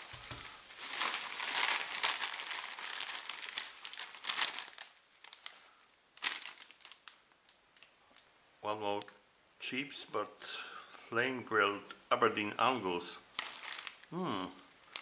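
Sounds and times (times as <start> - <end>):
bubble wrap crinkling: 0.0 - 8.3, 13.3 - 14.2, 14.8 - 15.0.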